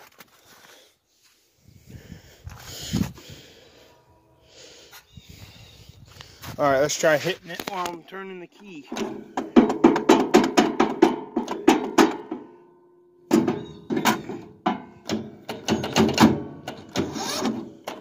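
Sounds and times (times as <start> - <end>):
weak starter motor cranking: 16.7 - 18.0.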